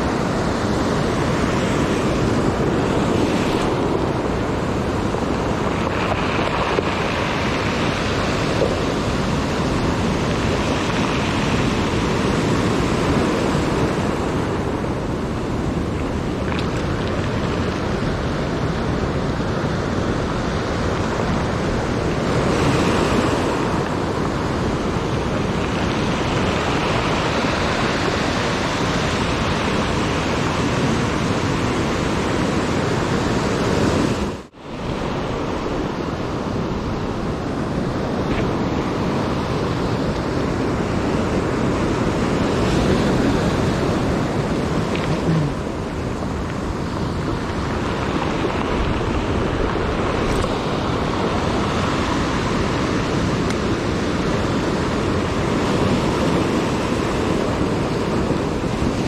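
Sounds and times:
surf on stony beach: 0.0 - 59.0.

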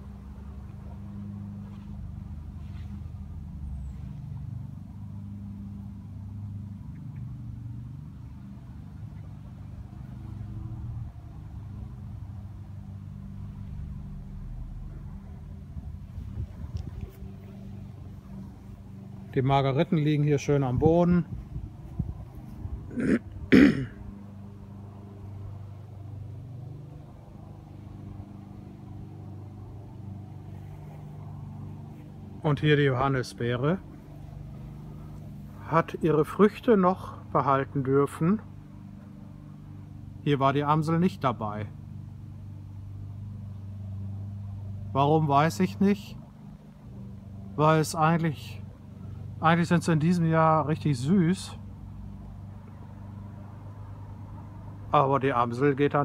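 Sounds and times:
low engine hum: 0.0 - 56.0
steady low rumble: 10.6 - 36.8.

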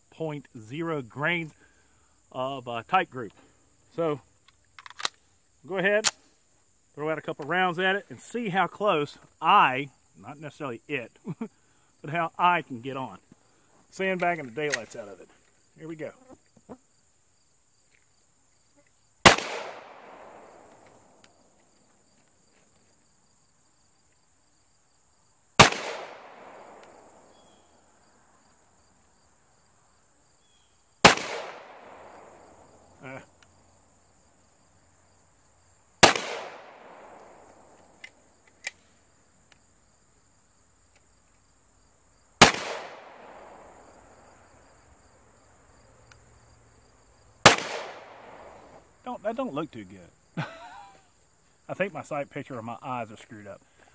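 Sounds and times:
crickets chirping: 0.0 - 53.9
pistol shots with echo: 19.2 - 20.8, 25.6 - 27.3, 31.0 - 32.5, 36.0 - 37.7, 42.4 - 43.8, 47.4 - 48.6.

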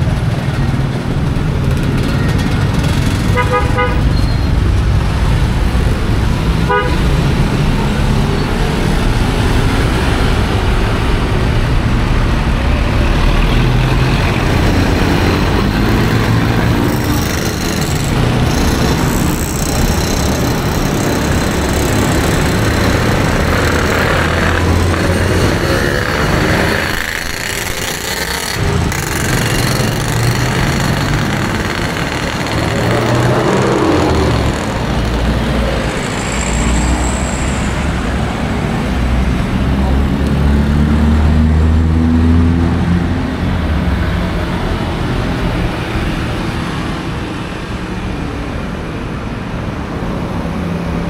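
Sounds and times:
city street traffic: 0.0 - 51.0
vehicle horn toot: 3.3 - 4.5, 6.7 - 7.1.

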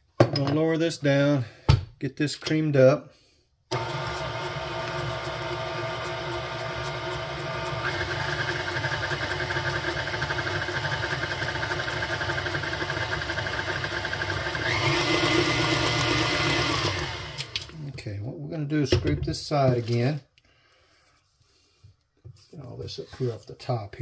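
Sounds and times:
stand mixer motor whining: 3.7 - 17.7.

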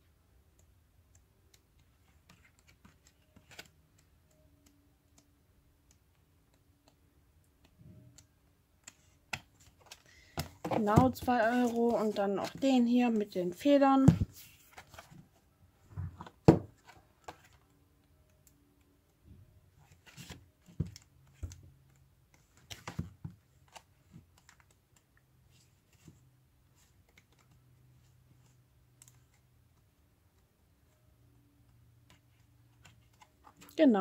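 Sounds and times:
paper rustling: 8.9 - 13.2, 14.1 - 15.4.

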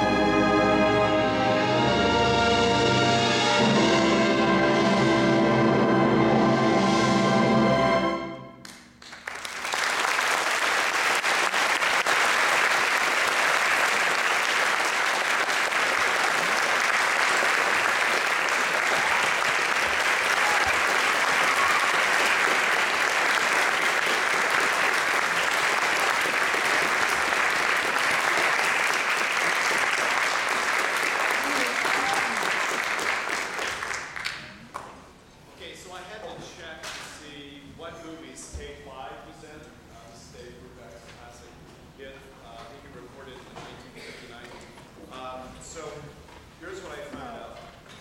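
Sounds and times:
orchestra holding a chord: 0.0 - 8.6
audience applause: 8.7 - 35.0.

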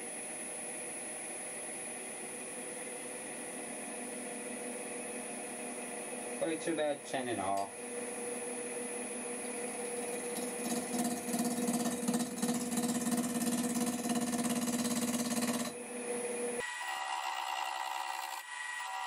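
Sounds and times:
lathe motor humming: 7.8 - 19.0.

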